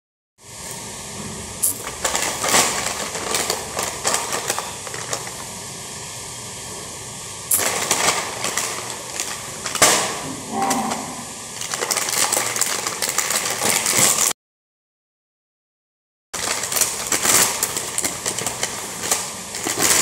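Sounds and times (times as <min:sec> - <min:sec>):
plastic packet crinkling: 0:01.6 - 0:05.6, 0:07.5 - 0:10.2, 0:11.5 - 0:14.4, 0:16.4 - 0:20.0.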